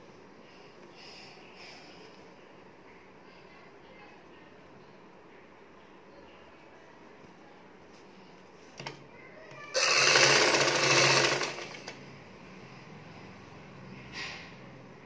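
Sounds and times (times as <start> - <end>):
sewing machine stitching: 9.8 - 12.0.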